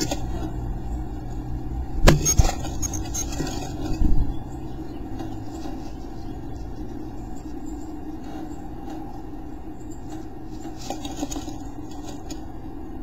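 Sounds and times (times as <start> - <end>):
steady low hum: 0.0 - 13.0
bird scratching on wood: 10.0 - 12.5.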